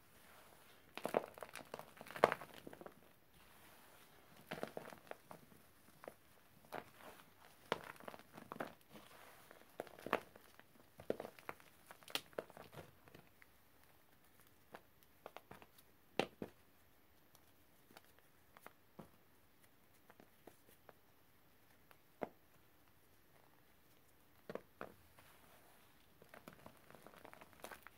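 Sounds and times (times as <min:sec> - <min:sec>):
dry powder crunching and crumbling: 0:00.1 - 0:16.5, 0:24.4 - 0:27.9.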